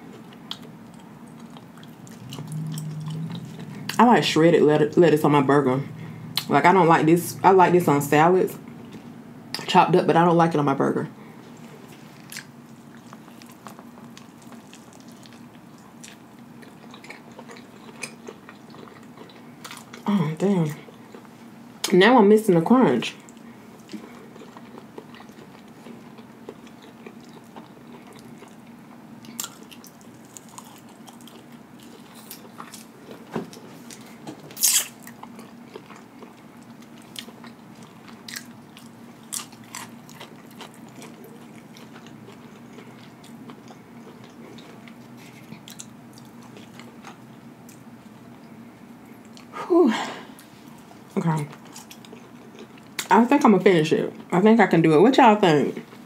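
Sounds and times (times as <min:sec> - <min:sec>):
quiet chewing: 0:00.0 - 0:04.0, 0:11.4 - 0:20.1, 0:23.2 - 0:49.6, 0:50.4 - 0:53.1
faint hum: 0:00.0 - 0:56.0.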